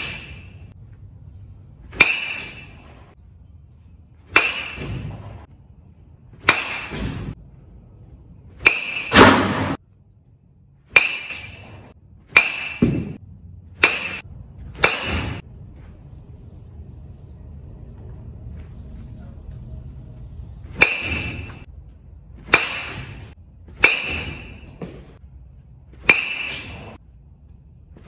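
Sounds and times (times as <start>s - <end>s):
metal bat pinging balls: 1.9s - 3.1s, 4.3s - 5.4s, 6.4s - 7.4s, 8.6s - 9.8s, 10.9s - 15.4s, 20.7s - 21.7s, 22.4s - 25.2s, 26.0s - 27.0s.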